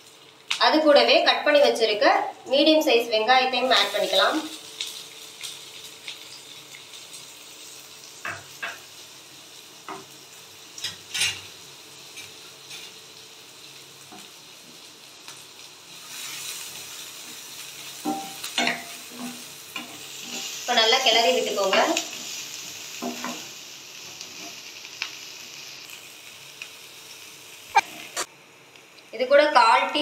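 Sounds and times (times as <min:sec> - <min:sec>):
onions sizzling in hot oil: 0:00.0 - 0:30.0
utensil scraping a pan: 0:18.0 - 0:20.6.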